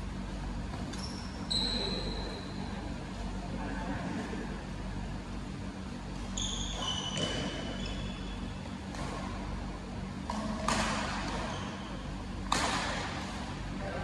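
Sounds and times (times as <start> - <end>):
shoes squeaking on court floor: 0.7 - 2.7, 6.1 - 8.6, 10.4 - 12.2
racket hitting shuttlecock: 7.1 - 7.8, 10.2 - 11.5, 12.4 - 13.5.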